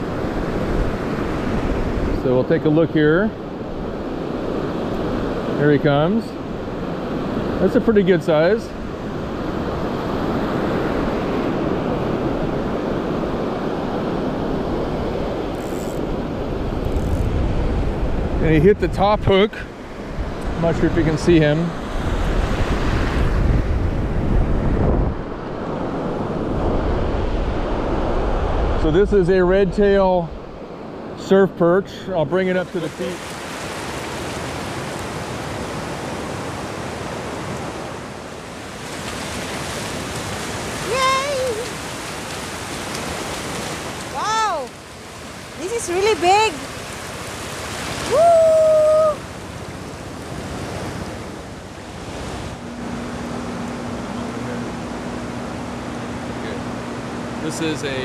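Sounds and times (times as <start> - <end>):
ocean surf breaking: 0.0 - 58.0
wind on microphone: 8.8 - 19.4, 21.8 - 30.6.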